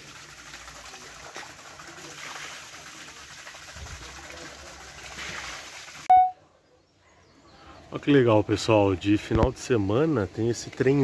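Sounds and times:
water splashing over water wheel: 0.0s - 6.1s.

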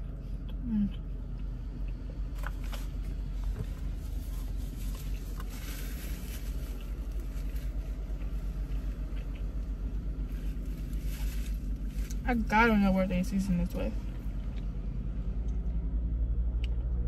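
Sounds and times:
car idling: 0.0s - 17.0s
paper napkin rustling: 4.0s - 8.1s.

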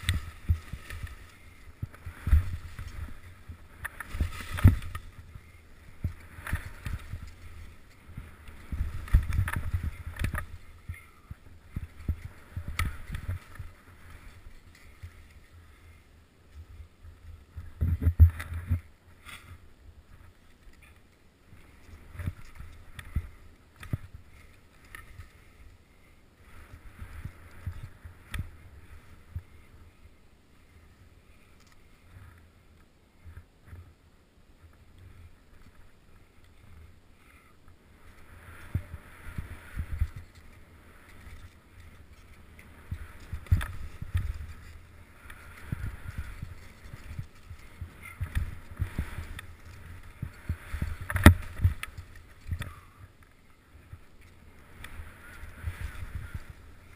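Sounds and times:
skis swishing through snow: 0.0s - 16.2s, 34.7s - 53.1s, 53.7s - 56.9s.

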